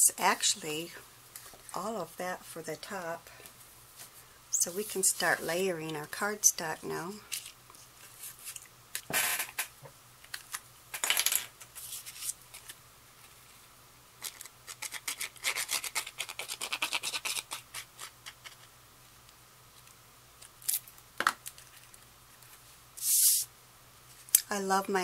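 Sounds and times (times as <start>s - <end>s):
glue applicator scratching on card: 14.4s - 18.6s.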